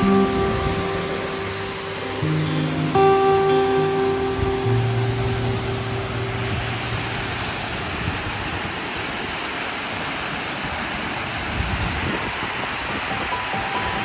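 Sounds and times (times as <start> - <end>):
background music: 0.0 - 7.4
waterfall rushing: 0.0 - 14.0.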